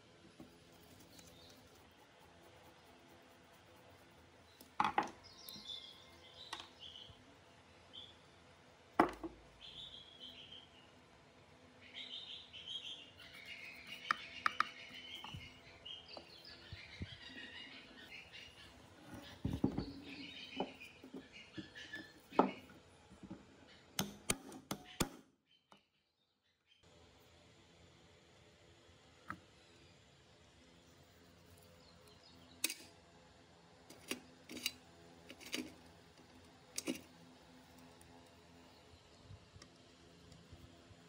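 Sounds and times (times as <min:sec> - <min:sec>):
birds chirping: 0:04.4 - 0:08.4, 0:11.8 - 0:22.8.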